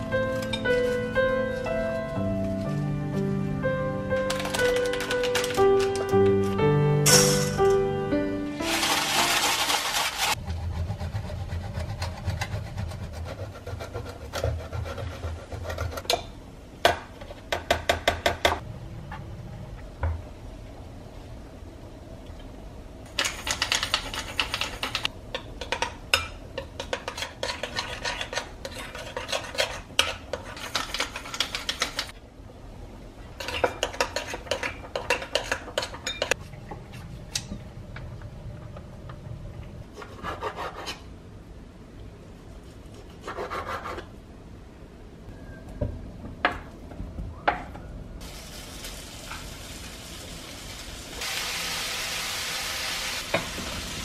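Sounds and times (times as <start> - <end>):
cheese grated on steel grater: 8.7 - 16.0.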